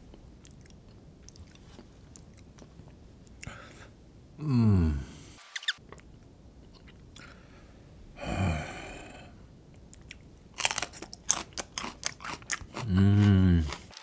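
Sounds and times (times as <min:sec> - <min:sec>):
person humming: 0:04.4 - 0:05.2, 0:08.2 - 0:09.4, 0:12.8 - 0:13.9
crunching chili pepper: 0:09.9 - 0:14.0.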